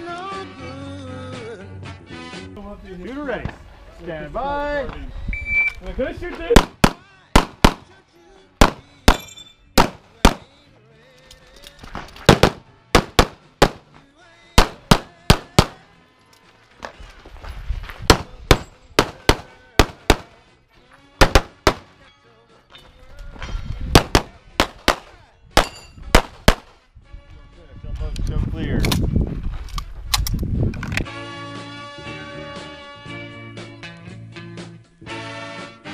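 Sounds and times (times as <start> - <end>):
rapid pistol shots: 6.6 - 7.9, 8.6 - 10.5, 12.3 - 13.9, 14.6 - 15.8, 18.1 - 20.4, 21.2 - 21.9, 24.0 - 26.8.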